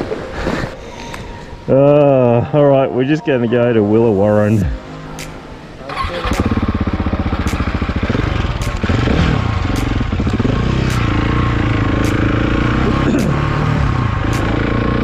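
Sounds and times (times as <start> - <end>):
motorcycle engine accelerating: 5.9 - 15.0.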